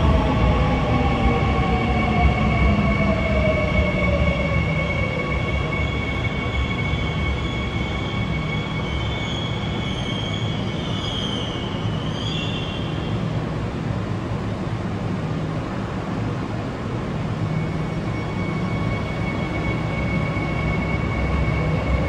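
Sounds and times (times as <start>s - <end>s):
high steady whine: 0.0s - 22.0s
train brakes squealing: 1.0s - 13.4s, 17.3s - 22.0s.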